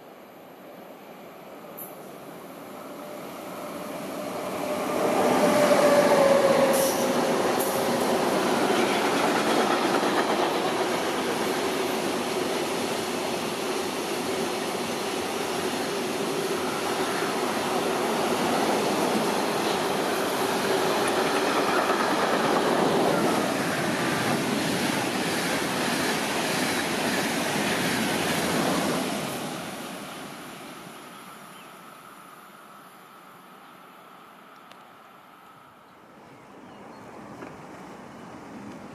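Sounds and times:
freight train passing: 0.0s - 38.9s
locomotive whine: 2.0s - 12.5s
wheels rumbling on rail: 2.7s - 30.7s.

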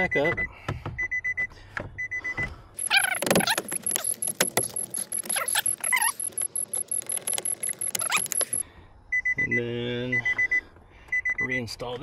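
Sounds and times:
door-open chime beeping: 2.8s - 8.6s.

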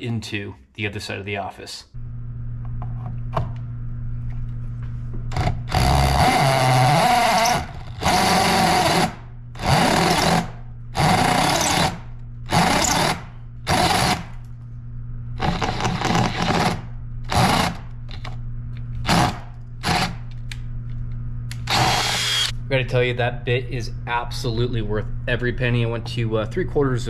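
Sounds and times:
drill cutting through steel: 5.3s - 14.3s, 15.4s - 17.8s, 19.0s - 20.2s, 21.5s - 22.5s.

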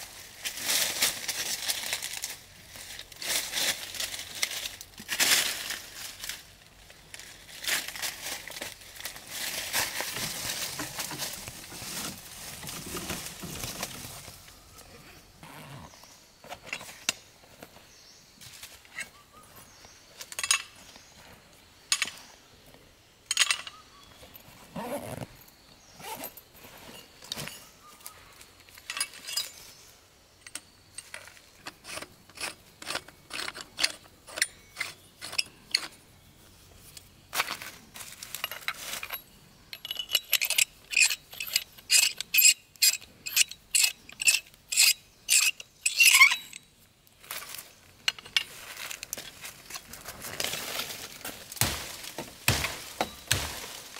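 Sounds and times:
metal hand tools scraping and clicking: 30.4s - 36.0s, 38.4s - 46.7s.

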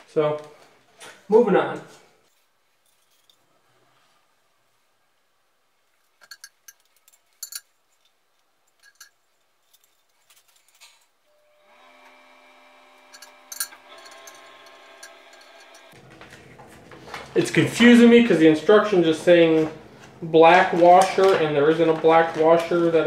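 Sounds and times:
steady hum: 11.3s - 21.0s.

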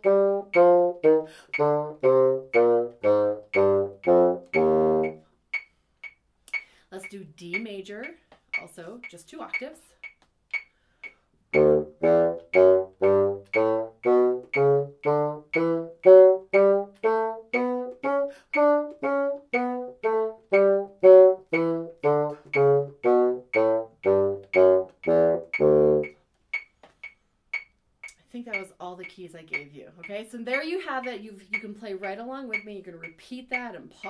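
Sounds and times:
bassoon playing a scale: 0.0s - 5.3s, 11.5s - 26.2s
metronome clicking: 0.0s - 34.0s.

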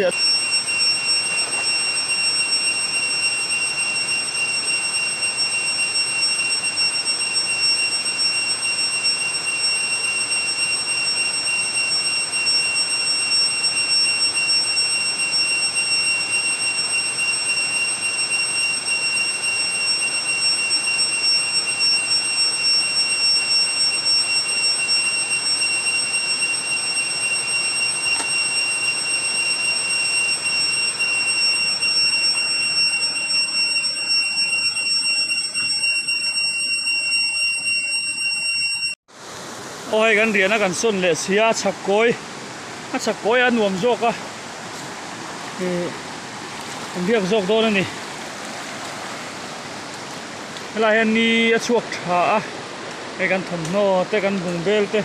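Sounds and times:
high-pitched insect drone: 0.0s - 39.0s
shallow stream rushing: 39.1s - 55.0s.

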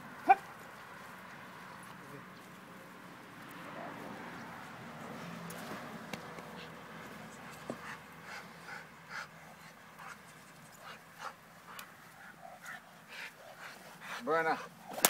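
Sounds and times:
dog panting: 6.5s - 14.9s.

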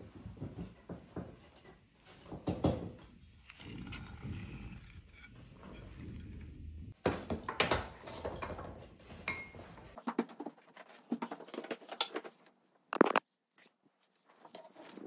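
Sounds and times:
utensils and dishes clinking: 6.9s - 10.2s.

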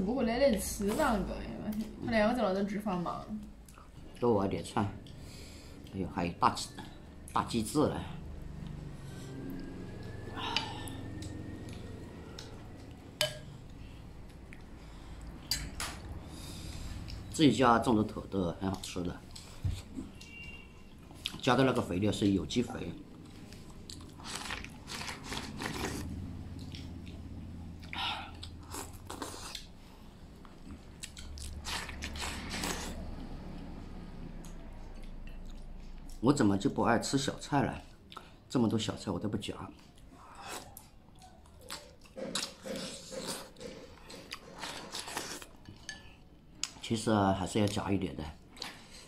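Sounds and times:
slurping and chewing: 23.2s - 33.3s, 40.0s - 46.8s.

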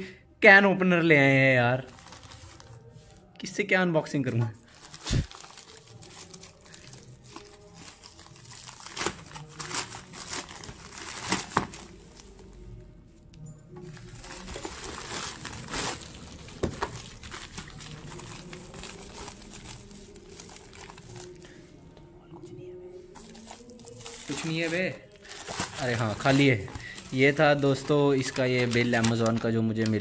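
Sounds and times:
plastic mailer bag crinkling and tearing: 1.8s - 3.2s, 4.7s - 12.5s, 13.9s - 21.5s, 23.2s - 30.0s.

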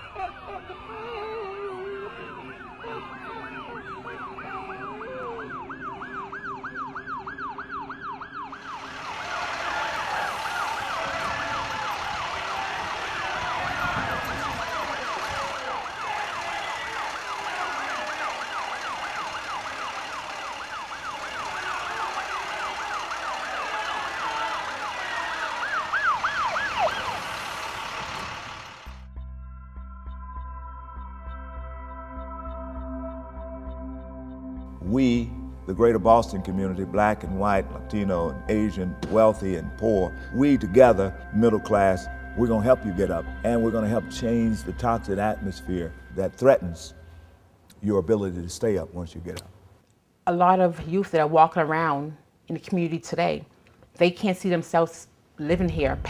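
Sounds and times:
emergency siren yelping: 0.0s - 29.0s, 30.6s - 47.3s
rush of steady noise: 8.7s - 29.0s.

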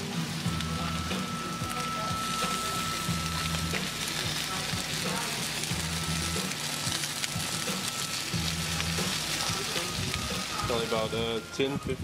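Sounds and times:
meat sizzling on grill: 0.0s - 12.0s.

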